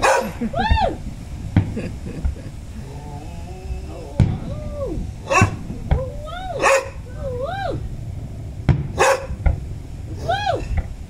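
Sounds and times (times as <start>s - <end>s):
firework shells bursting: 1.5s - 2.4s
high wavering cries: 2.5s - 8.6s, 9.9s - 10.8s.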